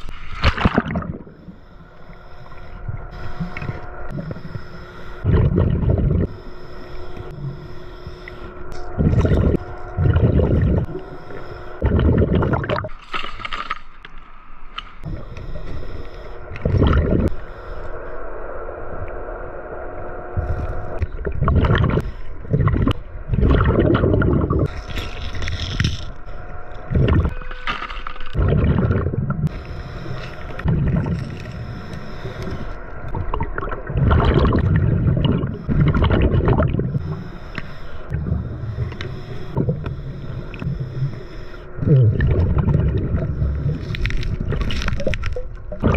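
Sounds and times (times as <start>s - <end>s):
bubbles rumbling and gurgling: 0.0s - 1.7s, 2.5s - 6.5s, 8.4s - 13.0s, 15.0s - 17.4s, 18.7s - 45.9s
underwater regulator breathing: 1.2s - 14.0s, 14.8s - 18.1s, 28.4s - 33.2s, 34.3s - 45.9s.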